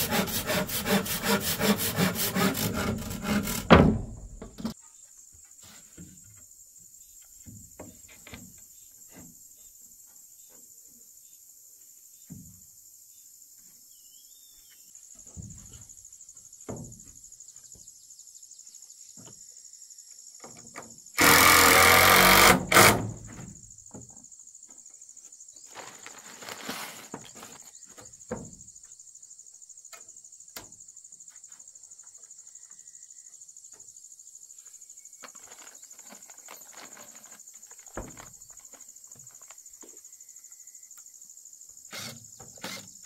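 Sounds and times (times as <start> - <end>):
insects droning: 0.0 - 43.0
drill driving screw into wood: 21.2 - 23.4, 41.9 - 43.0.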